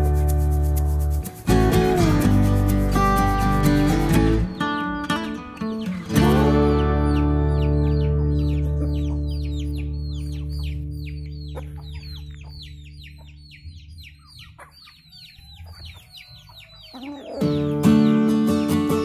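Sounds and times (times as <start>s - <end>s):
acoustic guitar music: 0.0s - 13.0s, 17.4s - 19.0s
chicks peeping: 5.7s - 18.4s.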